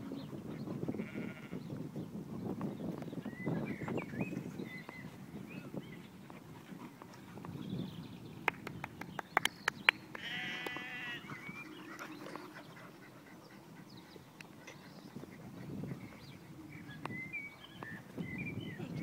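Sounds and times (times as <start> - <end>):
bleat-like animal call: 0.9 - 1.6, 10.2 - 11.3.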